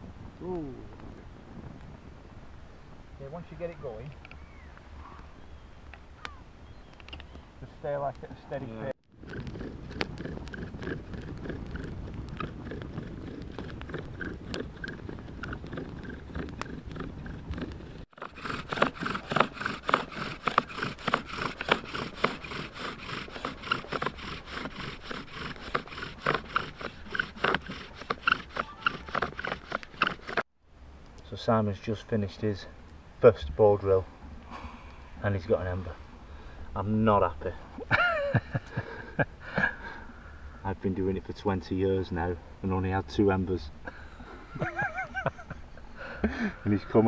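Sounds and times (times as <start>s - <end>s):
bow drill scraping squeak: 18.2s - 30.4s.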